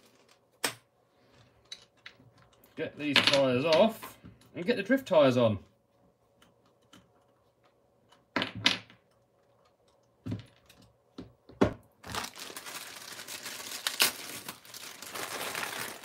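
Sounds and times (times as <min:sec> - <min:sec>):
plastic bag crinkling: 0:00.0 - 0:00.5, 0:11.9 - 0:16.0.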